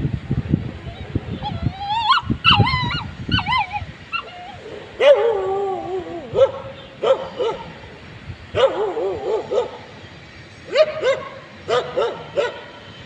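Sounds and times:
puppy whimpering and yelping: 0.9s - 6.5s.

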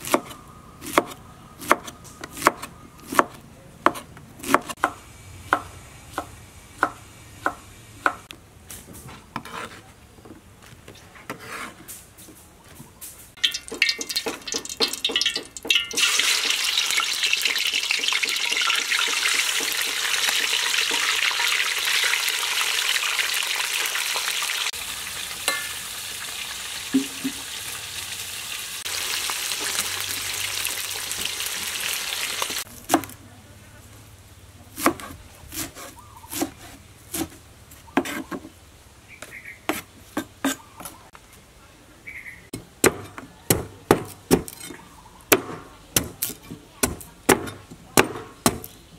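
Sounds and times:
knife chopping on wooden board: 0.0s - 8.3s, 34.8s - 37.4s, 38.0s - 38.5s, 42.6s - 44.7s, 45.3s - 48.8s
spatula stirring in a pan: 13.4s - 21.2s
food sizzling in a pan: 13.4s - 32.7s.

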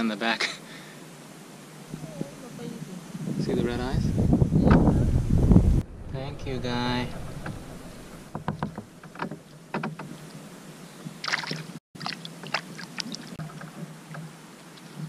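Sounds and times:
water splashing: 11.1s - 15.0s.

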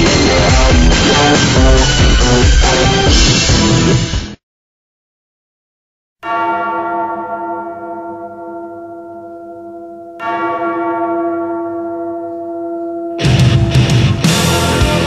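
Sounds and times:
bell tolling: 6.2s - 15.0s.

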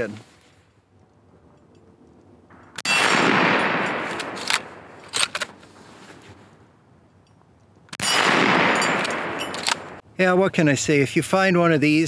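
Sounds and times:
rifle shots: 2.8s - 5.4s, 7.9s - 10.0s
rifle bolt metallic clicks: 4.1s - 5.6s, 8.8s - 10.0s.

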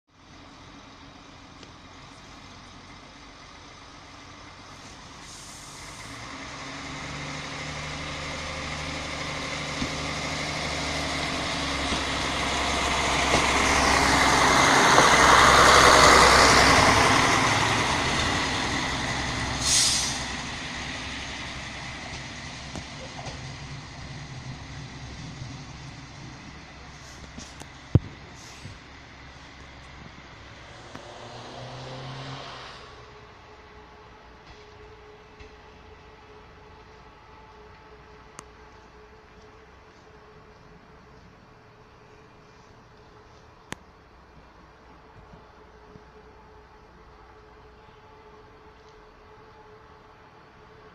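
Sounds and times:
passenger train passing: 0.4s - 50.9s
short hiss: 5.2s - 6.1s, 19.6s - 20.3s, 28.3s - 28.8s.

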